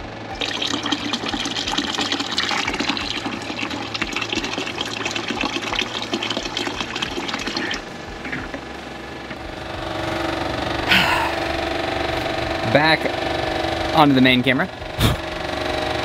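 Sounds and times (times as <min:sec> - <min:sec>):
pump humming: 0:00.0 - 0:16.0
liquid pouring in a gush: 0:00.4 - 0:08.4.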